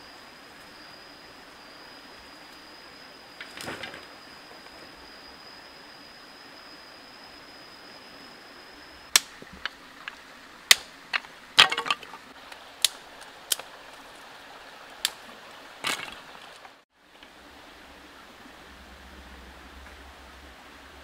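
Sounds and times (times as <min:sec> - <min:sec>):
stream water running: 0:00.0 - 0:21.0
wooden sticks snapping: 0:09.1 - 0:14.0, 0:14.9 - 0:16.6.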